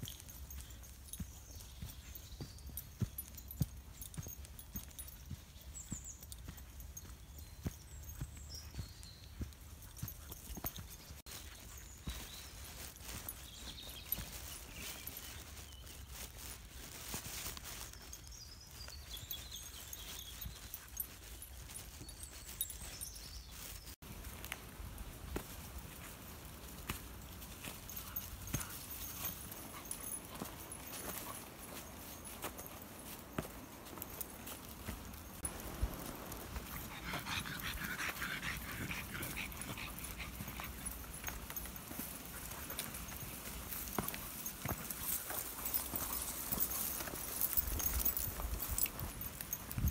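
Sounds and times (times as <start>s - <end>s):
footsteps on grass: 0.0s - 49.9s
dogs panting: 27.2s - 33.1s, 36.0s - 49.9s
wind rumble on microphone: 47.6s - 49.9s.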